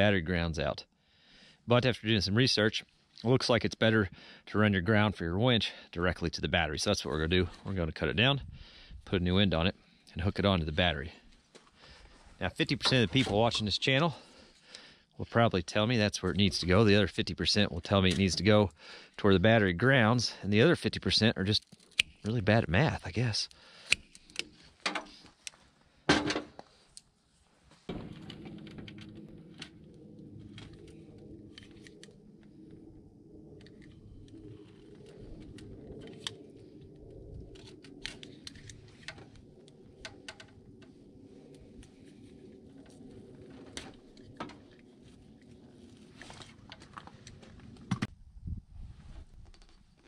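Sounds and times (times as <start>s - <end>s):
hand tools snipping and crimping: 23.8s - 25.6s
low hum: 27.2s - 49.0s.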